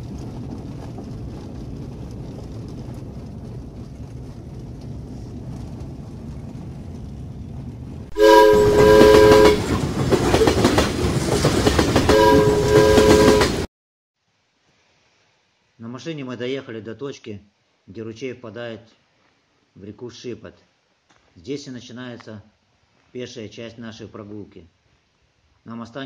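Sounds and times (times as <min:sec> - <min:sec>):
low road rumble in car: 0:00.0 - 0:09.9
loud rushing clatter: 0:00.0 - 0:13.7
horn chord: 0:08.1 - 0:09.7, 0:12.0 - 0:13.7.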